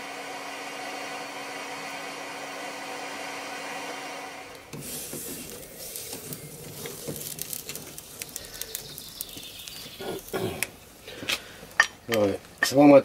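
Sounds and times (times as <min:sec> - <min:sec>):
bird calling: 0:06.4 - 0:10.8.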